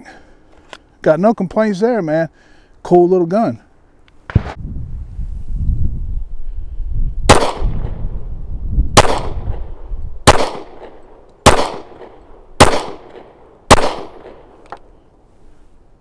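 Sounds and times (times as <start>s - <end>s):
pistol shots with echo: 7.3s - 8.0s, 9.0s - 14.5s.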